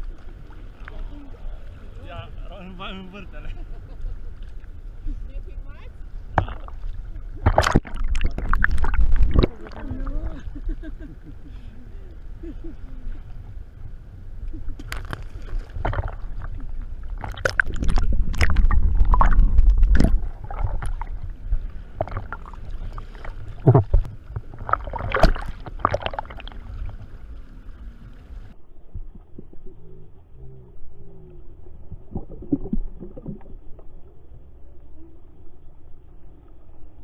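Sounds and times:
water rumbling against camera housing: 5.6s - 11.1s, 13.3s - 34.2s
sea water sloshing and splashing: 6.0s - 11.7s, 14.4s - 29.6s, 31.6s - 34.6s.

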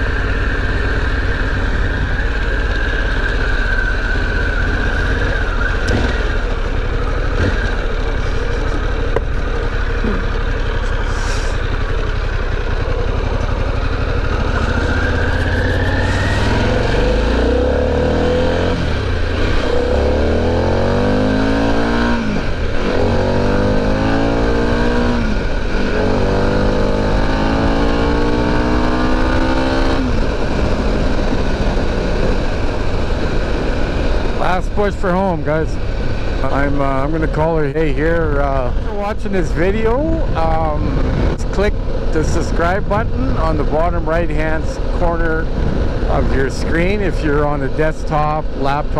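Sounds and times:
motorcycle engine accelerating: 0.0s - 48.9s
wind noise: 38.0s - 47.5s.

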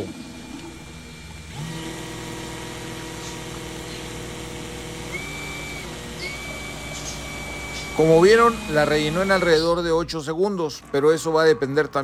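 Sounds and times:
cordless drill whining: 0.4s - 9.8s.

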